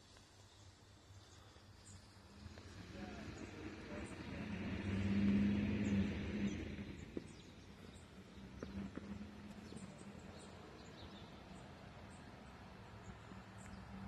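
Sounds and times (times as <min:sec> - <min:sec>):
motor vehicle passing: 0:02.2 - 0:14.0.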